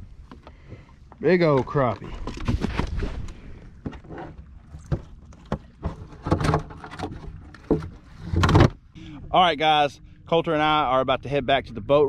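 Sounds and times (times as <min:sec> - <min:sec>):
low hum: 0:02.0 - 0:12.0
sharp knocks and rattles: 0:04.7 - 0:08.8.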